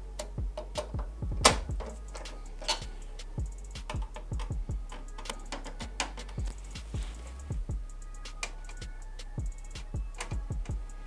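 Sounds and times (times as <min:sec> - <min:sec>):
screwdriver metallic clicks: 0:01.8 - 0:02.9.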